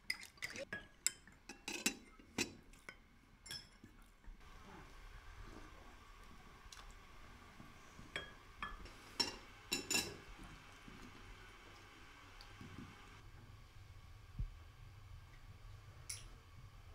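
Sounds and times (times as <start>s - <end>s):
glasses and dishes clinking: 8.2s - 10.2s.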